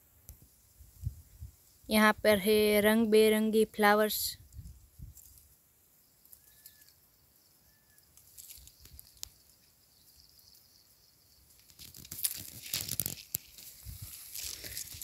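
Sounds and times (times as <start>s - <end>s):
faint bird chirps: 5.8s - 11.8s
dry leaves crunching and rustling: 8.2s - 9.3s, 11.6s - 15.0s.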